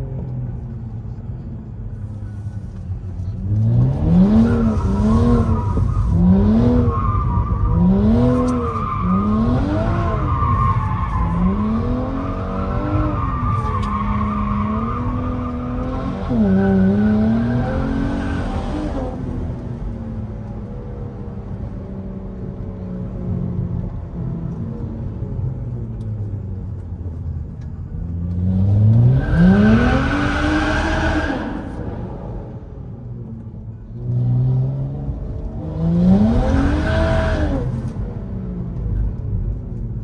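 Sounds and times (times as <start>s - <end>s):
tyre squeal: 4.3s - 17.3s.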